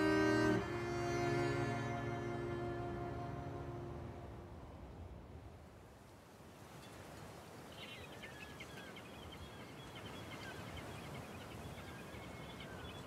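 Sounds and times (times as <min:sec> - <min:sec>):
small birds twittering: 0:07.7 - 0:13.0.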